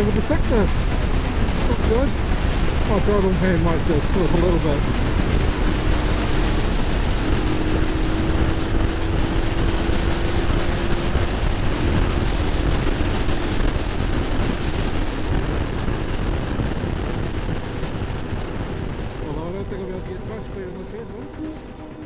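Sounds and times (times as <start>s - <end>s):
motorcycle engine droning: 0.0s - 22.0s
wind buffeting microphone: 0.0s - 22.0s.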